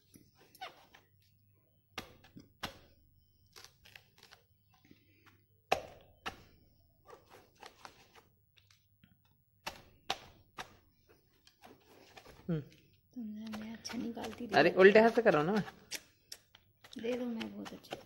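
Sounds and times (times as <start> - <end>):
blade chopping coconut: 13.8 - 16.0, 16.8 - 18.0.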